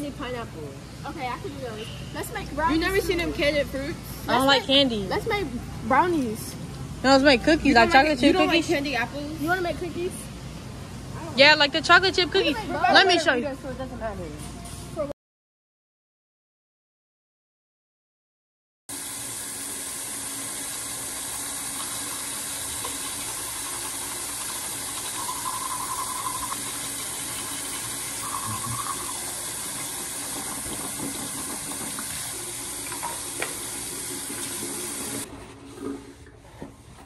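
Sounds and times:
faucet running into sink: 18.9 - 36.1.

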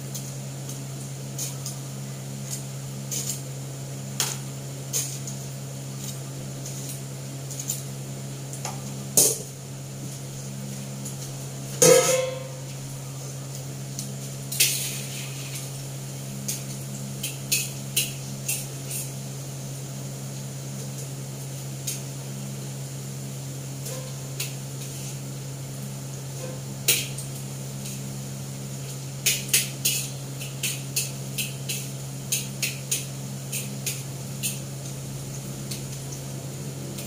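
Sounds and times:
steady low hum: 0.0 - 37.0
loud metal clang: 11.8 - 12.5
metal kitchenware clinking: 11.8 - 12.5
spatula tapping a wok: 11.8 - 12.5, 29.2 - 34.6.

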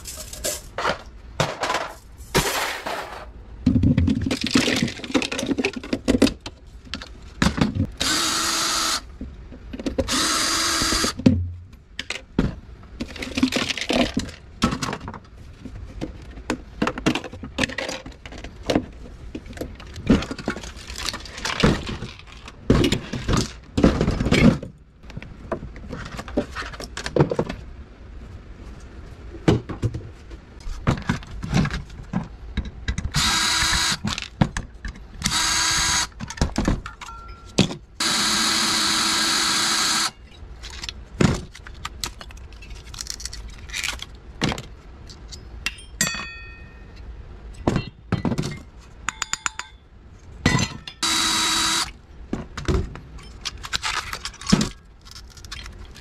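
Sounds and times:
plastic and metal parts clattering: 0.0 - 8.0, 12.0 - 27.7, 30.6 - 35.4, 36.1 - 37.9, 40.3 - 45.4, 52.3 - 56.0
cordless drill whirring: 8.0 - 9.0, 10.1 - 11.2, 33.2 - 34.0, 35.3 - 36.1, 38.0 - 40.1, 51.0 - 51.9.

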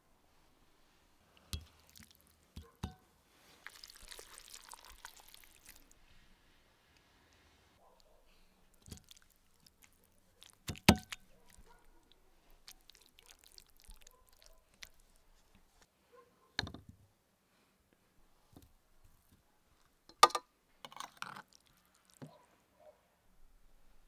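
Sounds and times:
sauerkraut squishing and rustling: 1.3 - 6.4, 7.9 - 15.9, 21.2 - 22.4.

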